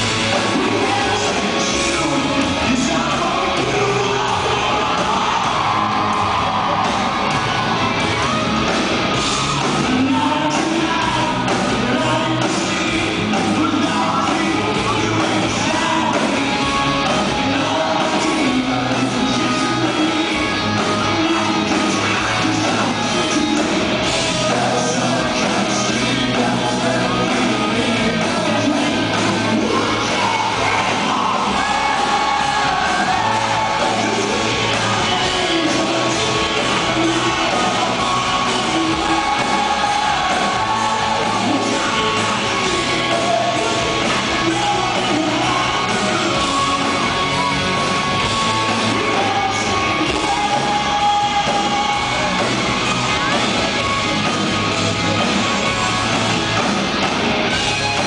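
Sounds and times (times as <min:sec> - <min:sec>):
man singing: 0:00.0 - 0:06.3, 0:09.8 - 0:53.4
live rock band playing: 0:00.0 - 0:58.0.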